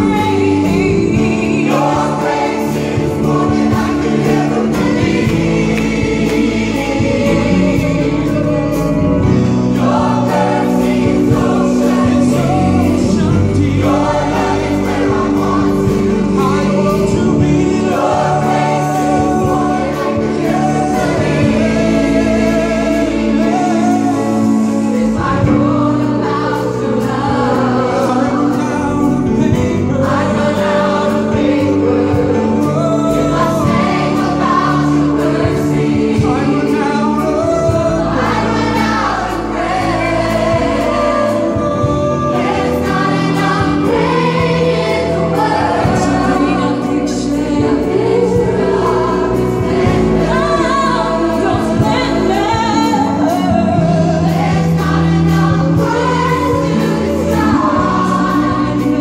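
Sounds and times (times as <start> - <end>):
choir singing gospel song: 0.0 - 59.0
keyboard accompaniment: 0.0 - 59.0
man singing into microphone: 16.0 - 19.9, 27.8 - 33.6.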